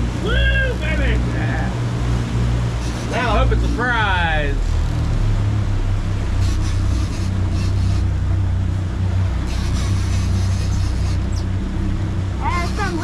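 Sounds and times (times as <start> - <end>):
outboard engines droning: 0.0 - 13.0
water rushing along hull: 0.0 - 13.0.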